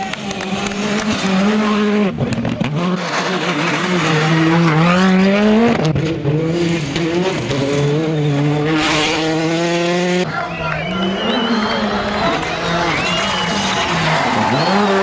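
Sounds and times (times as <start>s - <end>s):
rally cars revving hard: 0.0s - 15.0s.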